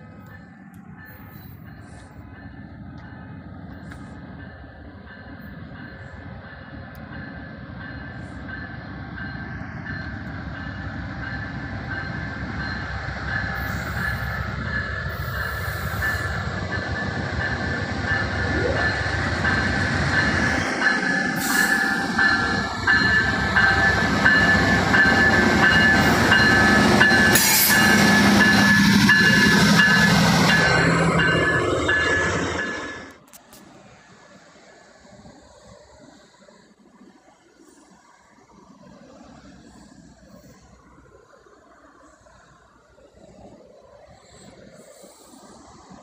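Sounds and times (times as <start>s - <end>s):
diesel locomotive engines: 0.0s - 46.0s
train wheels rolling: 0.0s - 46.0s
steady high tone: 7.3s - 33.2s.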